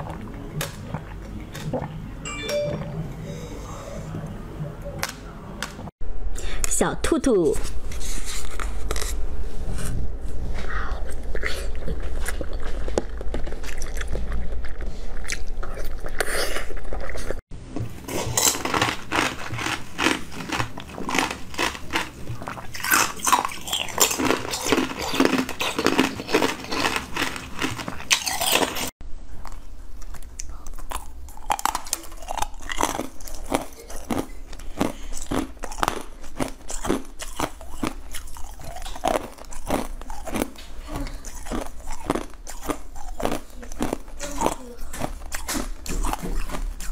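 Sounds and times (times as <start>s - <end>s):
crisp crunching of frozen pieces: 18.0s - 28.9s, 30.8s - 46.9s.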